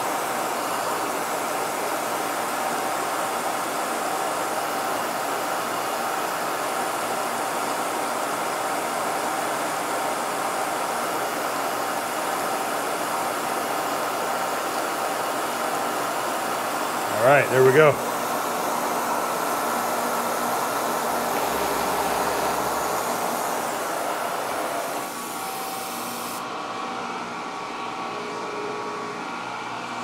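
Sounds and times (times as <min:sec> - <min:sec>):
milling machine cutting steel: 0:18.0 - 0:26.4.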